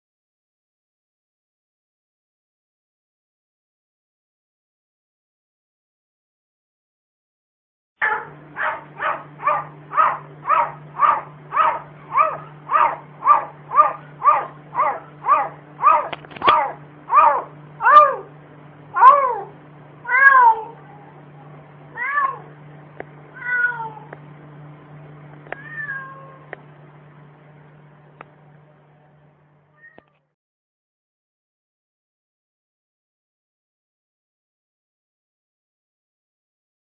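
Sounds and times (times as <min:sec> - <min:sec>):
cat giving bark-like calls: 0:09.0 - 0:18.3, 0:19.0 - 0:19.5, 0:20.1 - 0:20.8.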